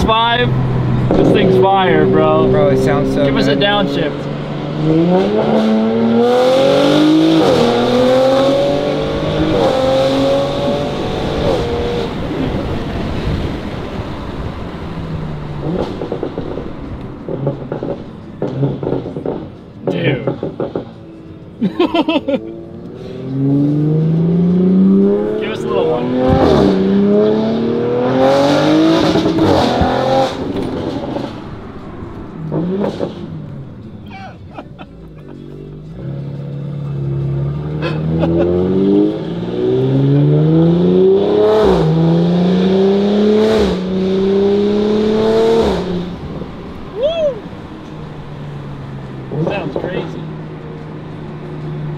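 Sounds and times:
rough exhaust rumble: 0.0s - 6.1s
car engine accelerating: 0.0s - 51.9s.

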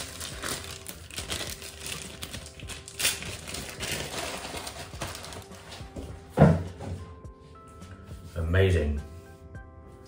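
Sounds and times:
plastic packaging clacking and rustling: 0.0s - 6.6s.

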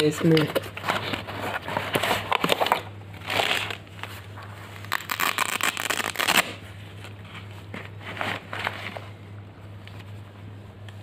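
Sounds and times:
steady low hum: 0.0s - 11.0s
cardboard scraping and crinkling: 0.3s - 5.0s, 7.0s - 9.2s.

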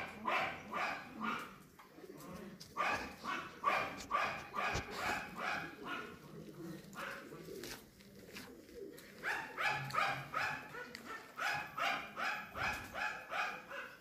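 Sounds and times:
puppies yapping: 9.2s - 14.0s.

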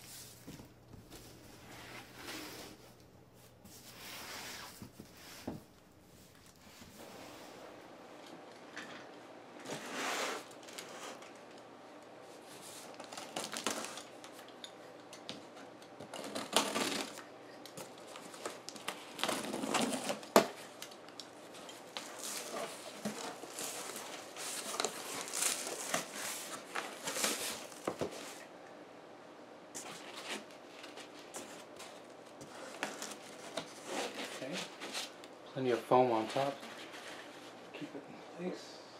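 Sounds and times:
cardboard flaps rustling: 17.8s - 20.9s, 21.5s - 28.4s.

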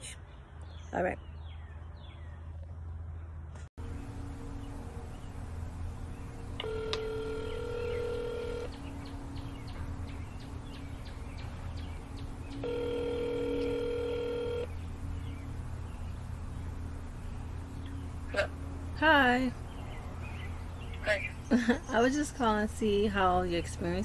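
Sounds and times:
steady low hum: 3.8s - 24.0s
telephone ringback tone: 6.6s - 8.7s, 12.6s - 14.7s.

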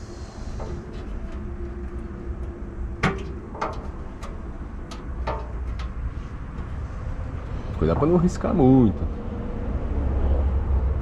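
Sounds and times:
low steady rumble: 0.0s - 11.0s
metal tools clicking and knocking: 0.6s - 6.6s.

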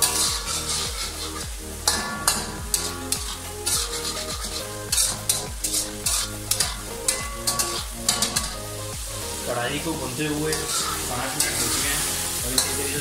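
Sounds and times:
spatula scraping a metal pan: 0.0s - 8.6s, 10.5s - 11.9s
background music with steady beat: 0.0s - 13.0s
chicken sizzling in oil: 0.0s - 13.0s.

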